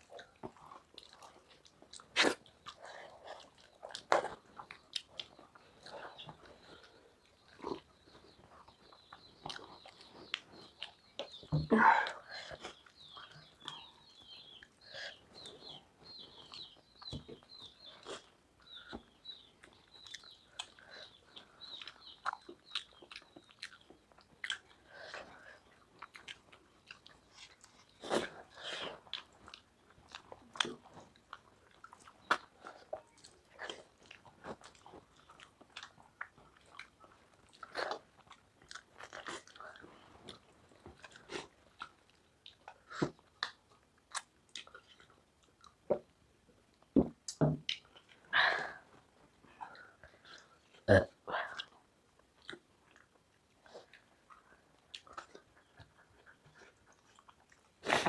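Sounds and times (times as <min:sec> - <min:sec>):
chewing and mouth smacks: 0:00.0 - 0:11.6, 0:12.5 - 0:48.3, 0:51.5 - 0:58.0
bird chirping: 0:02.6 - 0:31.0.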